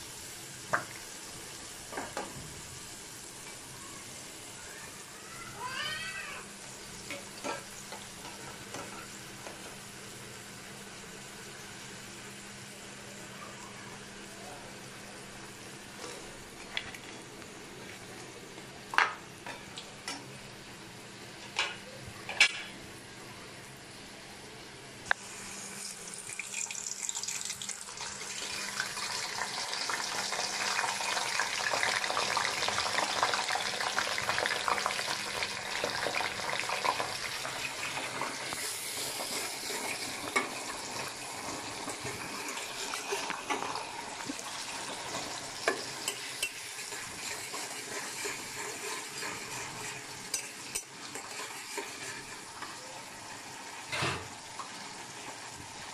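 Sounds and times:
hot oil sizzling: 0.0 - 55.9.

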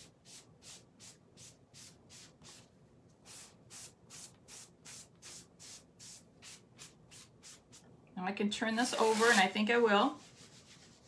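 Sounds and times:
sponge swishing over plastic sheet: 8.8 - 11.0.

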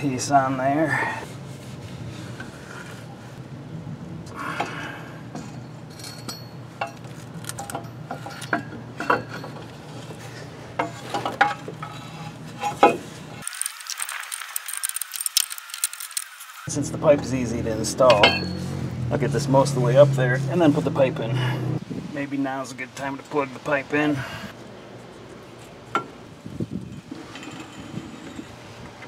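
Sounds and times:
light metallic clinks and knocks: 5.4 - 9.8
fine high clicking: 13.4 - 16.6.

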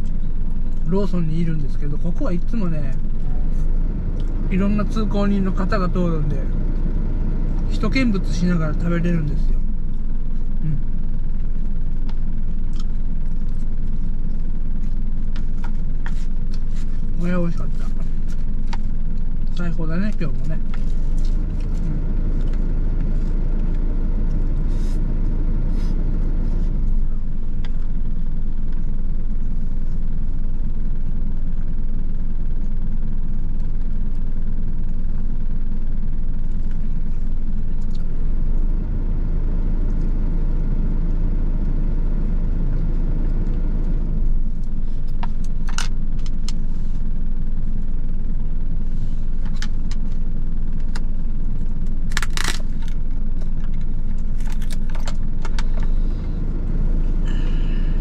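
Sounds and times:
truck engine idling: 0.0 - 58.0.

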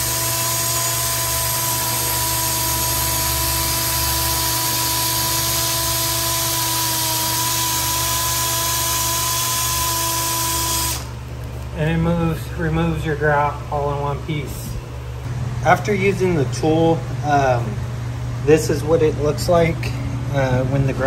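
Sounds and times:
cordless drill running steadily: 0.0 - 11.2.

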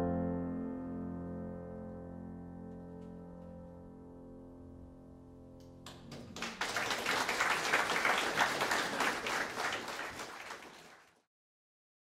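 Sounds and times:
audience applause: 5.9 - 11.2.

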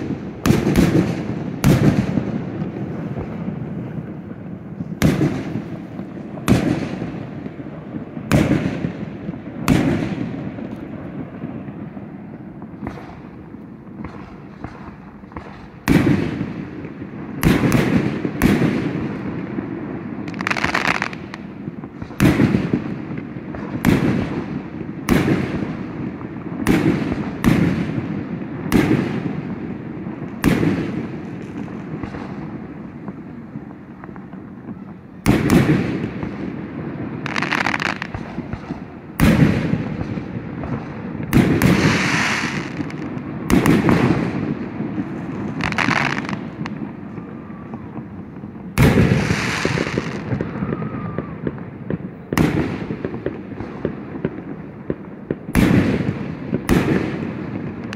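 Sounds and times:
firework crackling: 0.0 - 57.9
firework shells bursting: 37.2 - 47.2.

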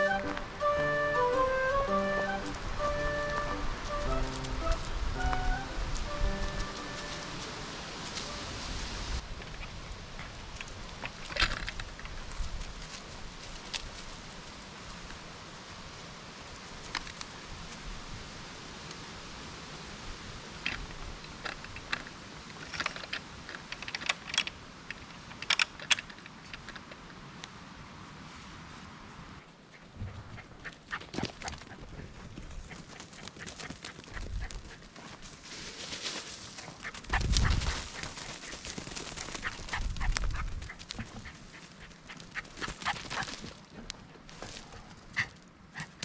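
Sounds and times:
dog paws running through leaves: 0.0 - 15.3, 30.2 - 45.4.

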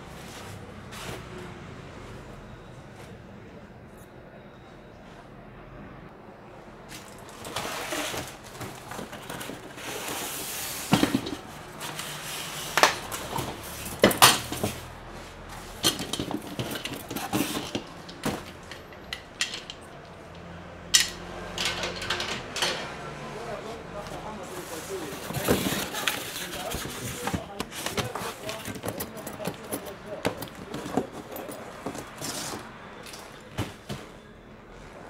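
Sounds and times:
plastic wrap and cardboard rustling: 6.9 - 18.7, 24.0 - 34.3
hard plastic parts clacking: 7.0 - 12.1, 12.7 - 14.9, 15.6 - 22.9, 25.0 - 33.9.

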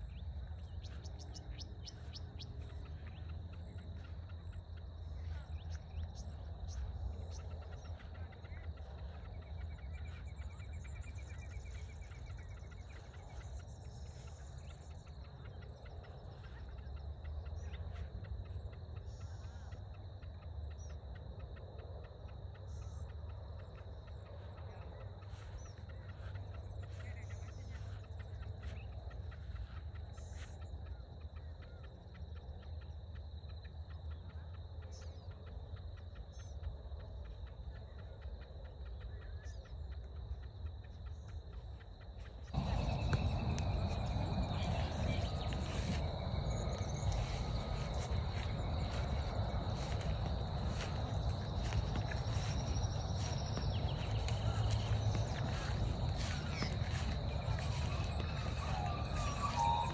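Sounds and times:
insects chirping in chorus: 0.0 - 59.9
low rumble on microphone: 42.4 - 59.9
short bird calls: 53.2 - 59.9.

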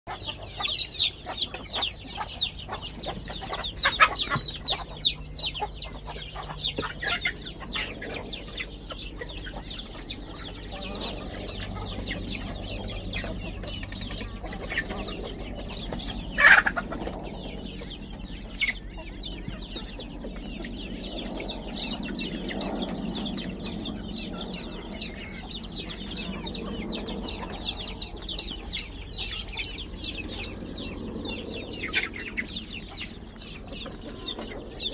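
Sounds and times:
chickens clucking and chirping: 0.1 - 34.9
pecking clicks on feed pans: 11.1 - 20.6
chicken squawk: 14.2 - 17.2.

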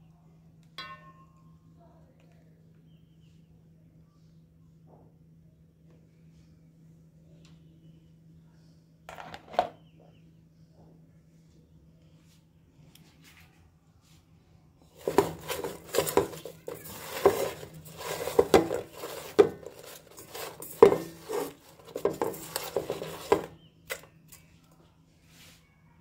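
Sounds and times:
spoon clinking and scraping in pot: 15.0 - 23.6.

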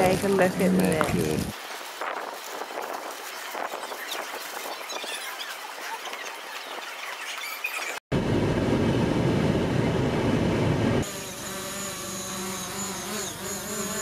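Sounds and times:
drone propellers buzzing: 8.2 - 14.0.

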